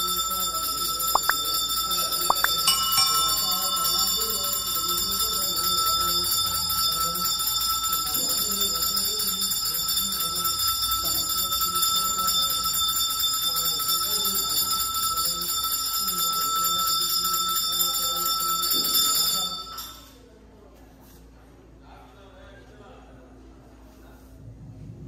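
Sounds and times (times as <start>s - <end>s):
temple bells ringing: 0.0s - 20.0s.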